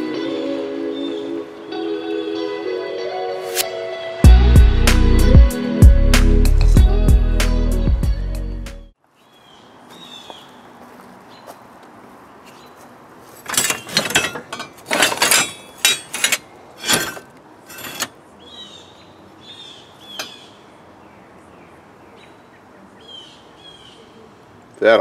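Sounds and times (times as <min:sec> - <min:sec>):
birds chirping: 0:00.9 - 0:01.6, 0:09.0 - 0:13.1, 0:17.8 - 0:25.0
scrap metal clanking and rattling: 0:13.4 - 0:18.2.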